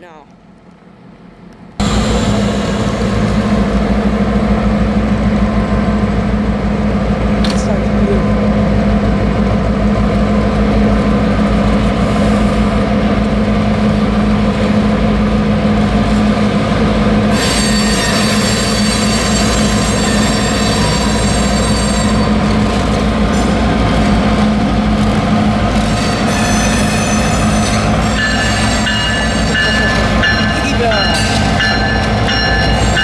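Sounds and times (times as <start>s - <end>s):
diesel locomotive engine running: 0.0s - 33.0s
train wheels squealing: 17.3s - 22.5s, 25.9s - 33.0s.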